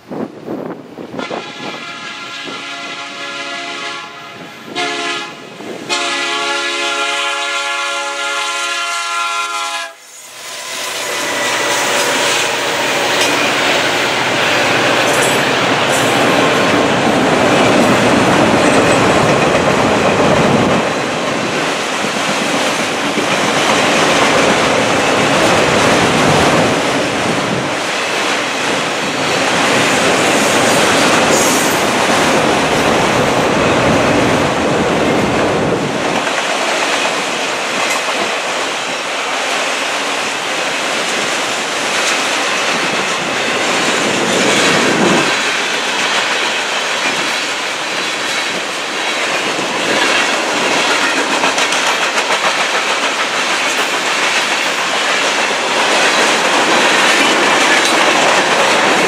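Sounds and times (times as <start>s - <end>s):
train cars rumbling and clacking: 0.0s - 59.0s
train air horn blasts: 1.1s - 14.0s.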